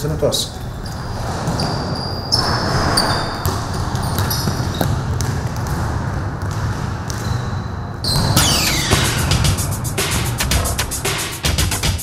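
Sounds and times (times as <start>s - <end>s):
sneakers squeaking: 0.4s - 10.0s
basketballs bouncing on gym floor: 3.0s - 9.6s.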